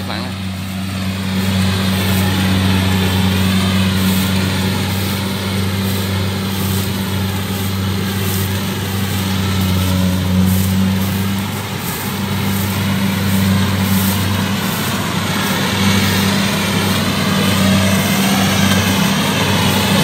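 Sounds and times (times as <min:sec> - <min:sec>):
combine harvester engine hum: 0:00.0 - 0:20.0.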